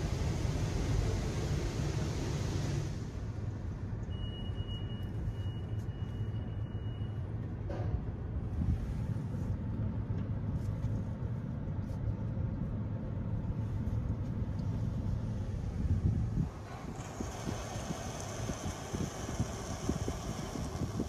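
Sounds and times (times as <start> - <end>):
car wash hiss: 0.0 - 3.2, 16.4 - 21.0
car wash machine rumbling: 0.0 - 3.4, 14.6 - 21.0.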